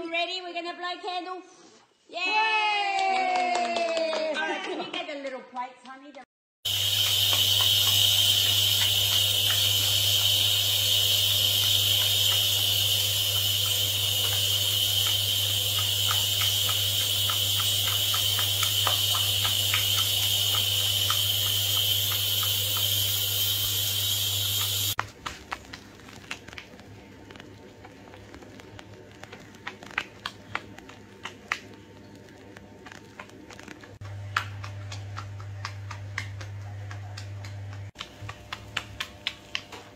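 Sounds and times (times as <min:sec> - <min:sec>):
foam crackling: 0:06.7 - 0:34.0
water rushing from bath jets: 0:06.7 - 0:35.0.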